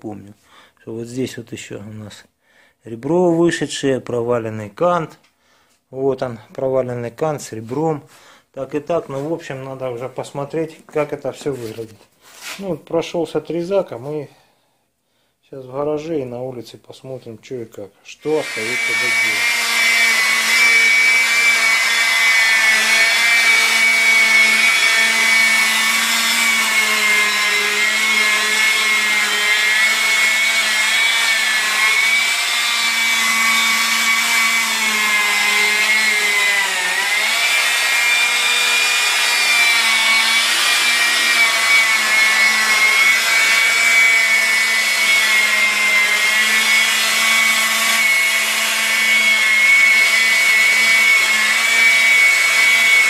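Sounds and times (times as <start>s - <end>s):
electric polisher whining: 18.4s - 53.0s.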